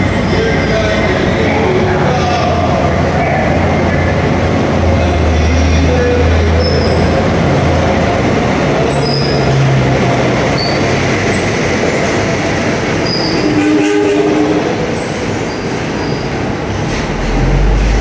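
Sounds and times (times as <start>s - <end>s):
train rumbling on track: 0.0s - 18.0s
low motor hum: 16.9s - 18.0s.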